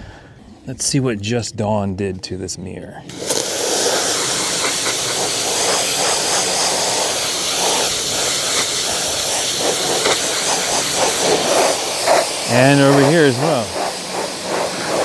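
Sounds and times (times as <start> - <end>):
pressure washer spray hissing: 3.1 - 15.0.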